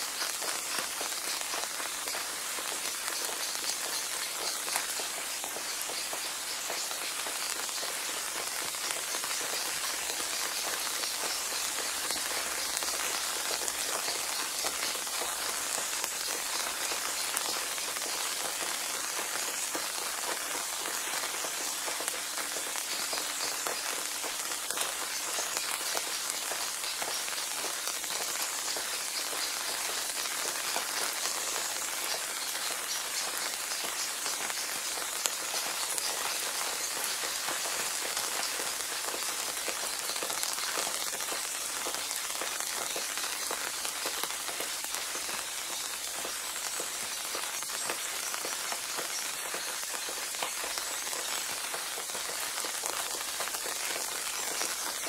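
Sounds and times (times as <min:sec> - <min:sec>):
rain falling on a pond: 0:00.0 - 0:55.0.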